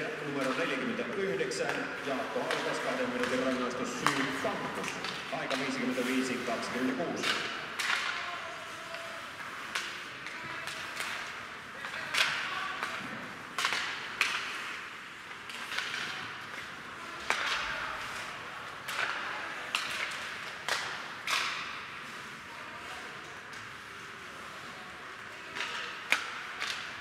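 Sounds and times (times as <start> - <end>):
hockey sticks striking puck: 0.0 - 27.0
skates scraping ice: 0.1 - 27.0
puck hitting the boards: 1.6 - 8.5, 9.4 - 22.2.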